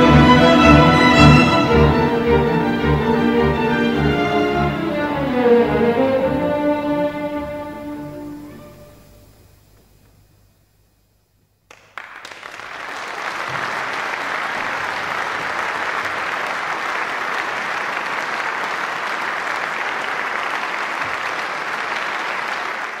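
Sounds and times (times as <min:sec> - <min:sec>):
audience applauding: 0:11.7 - 0:23.0.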